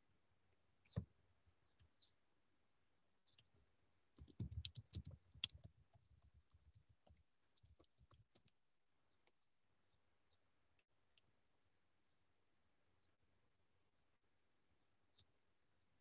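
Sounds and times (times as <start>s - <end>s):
computer keyboard clicking: 4.2s - 8.5s.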